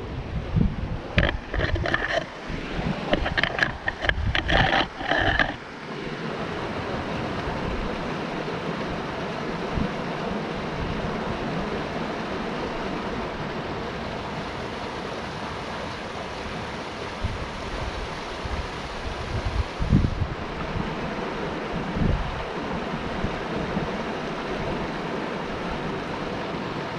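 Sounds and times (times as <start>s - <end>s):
wind on microphone: 0.0s - 12.0s, 17.0s - 26.8s
water rushing over rocks: 0.1s - 26.9s.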